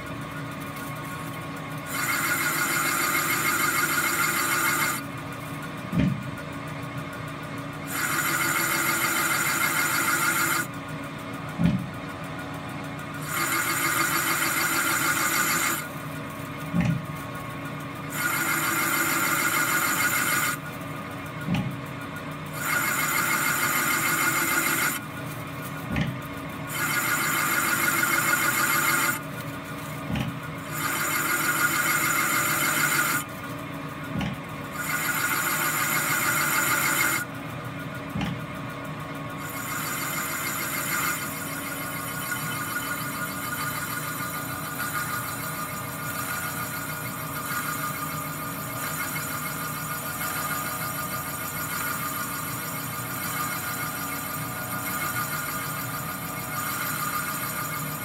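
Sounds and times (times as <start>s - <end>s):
lathe cutting metal: 1.9s - 5.1s, 7.9s - 10.7s, 13.2s - 16.1s, 18.0s - 20.7s, 22.5s - 25.8s, 26.6s - 30.0s, 30.6s - 33.5s, 34.7s - 37.3s, 39.4s - 58.0s.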